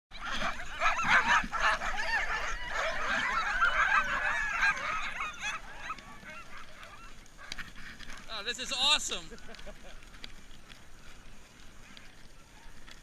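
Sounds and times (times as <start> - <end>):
sled dogs yelping and howling: 0.1 - 8.9.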